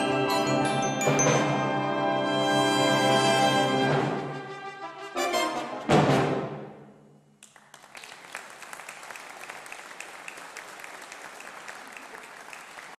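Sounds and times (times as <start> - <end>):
brass band chord: 0.0 - 6.8
audience applauding: 7.4 - 12.9.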